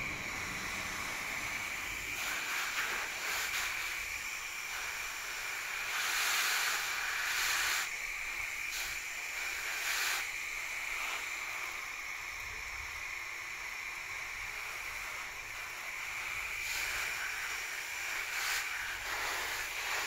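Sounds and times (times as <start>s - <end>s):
hose nozzle spraying water on leaves: 0.1s - 12.0s, 14.5s - 20.0s.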